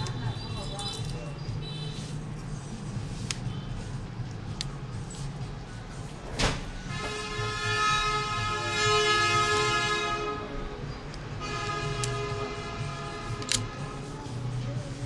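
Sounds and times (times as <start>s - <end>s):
steady horn-like tone: 6.8s - 10.5s, 11.4s - 14.3s.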